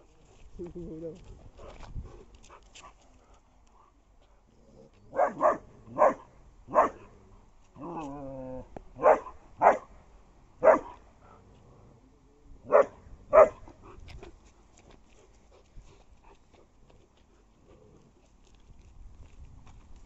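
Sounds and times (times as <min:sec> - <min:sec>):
dog barking: 0:05.1 - 0:07.0, 0:09.0 - 0:09.9, 0:10.6 - 0:11.0, 0:12.7 - 0:13.6.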